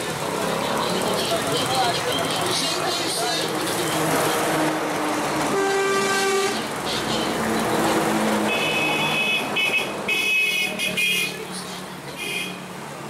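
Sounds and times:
street traffic noise: 0.0s - 13.0s
vehicle horn honking: 5.5s - 7.3s, 8.4s - 11.4s, 12.2s - 12.6s.

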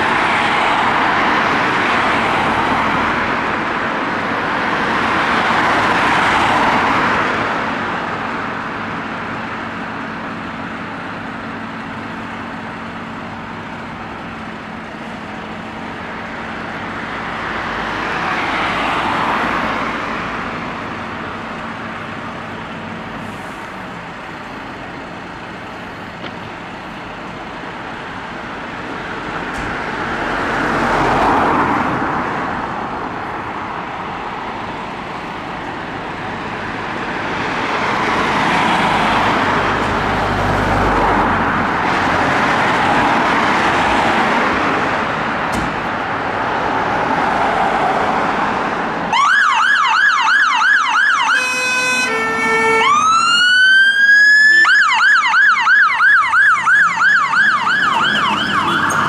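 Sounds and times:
fire engine engine running: 0.0s - 30.8s, 31.9s - 59.0s
siren yelping and wailing: 49.1s - 59.0s.

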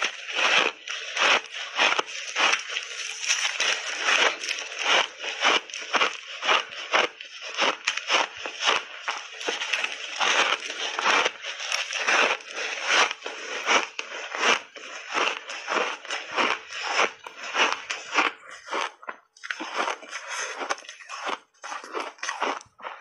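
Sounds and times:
ice chunks crunching while chewed: 0.0s - 23.0s.

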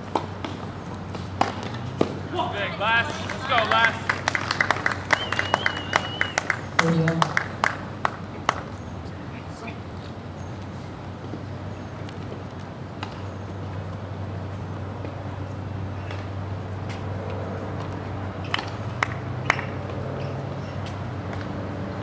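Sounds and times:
tennis ball bouncing on hard court: 0.0s - 2.2s
low background hum: 0.0s - 22.0s.

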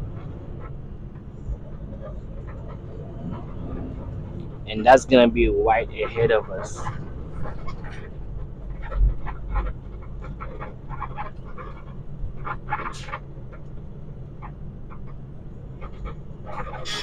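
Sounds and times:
truck diesel engine rumble: 0.0s - 11.4s.

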